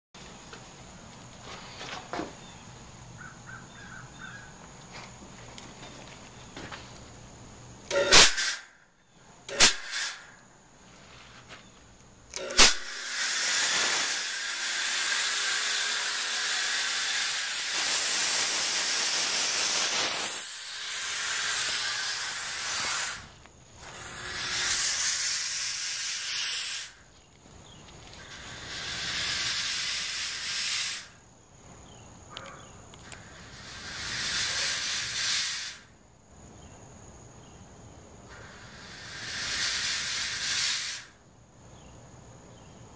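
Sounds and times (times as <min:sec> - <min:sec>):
fog machine hissing: 0:07.9 - 0:08.7, 0:09.5 - 0:10.4, 0:12.3 - 0:27.1, 0:28.2 - 0:31.2, 0:33.2 - 0:35.9, 0:38.3 - 0:41.2.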